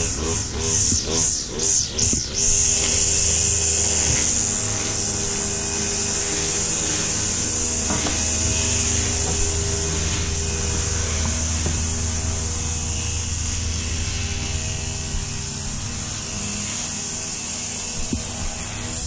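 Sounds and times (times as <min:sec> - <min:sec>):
small gasoline engine idling: 0:00.0 - 0:19.0.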